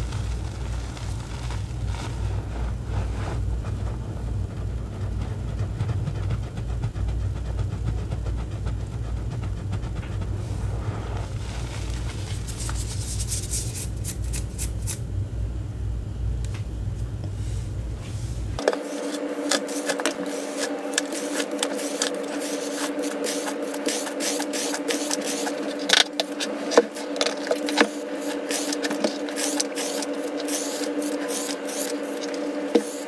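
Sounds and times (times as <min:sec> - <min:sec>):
crisp crackles: 0:00.0 - 0:04.0
hands squeezing powder: 0:00.0 - 0:15.0, 0:18.6 - 0:33.0
steady low rumble: 0:00.0 - 0:33.0.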